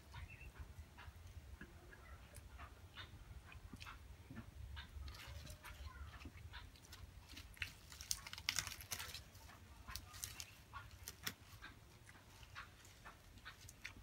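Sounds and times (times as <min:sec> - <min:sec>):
person chewing wetly: 0:06.2 - 0:14.0
leaves rustling: 0:06.7 - 0:14.0.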